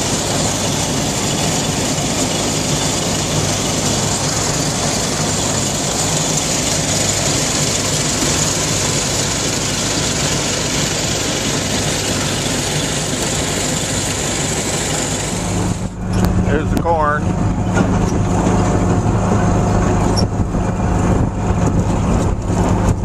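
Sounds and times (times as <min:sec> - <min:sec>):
corn picker machinery running: 0:00.0 - 0:23.0
tractor engine running under load: 0:00.0 - 0:23.0.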